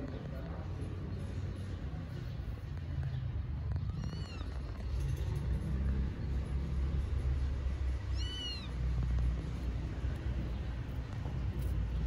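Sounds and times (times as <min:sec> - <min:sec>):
low steady rumble: 0:00.0 - 0:12.0
kitten meowing: 0:03.9 - 0:04.8, 0:08.1 - 0:08.8.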